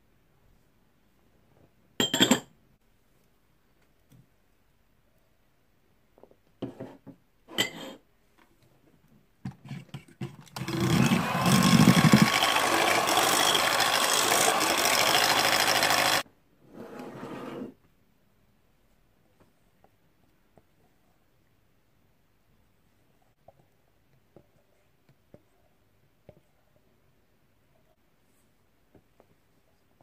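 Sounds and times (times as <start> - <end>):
electric hand mixer beating batter: 10.6 - 16.2.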